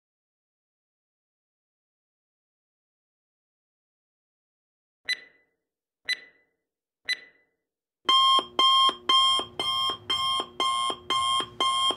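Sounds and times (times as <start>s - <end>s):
digital alarm pulses: 5.1s - 5.4s, 6.1s - 6.4s, 7.1s - 7.4s, 8.1s - 11.9s
timer ticks: 5.1s - 5.4s, 6.1s - 6.5s, 7.1s - 7.4s, 8.1s - 11.9s.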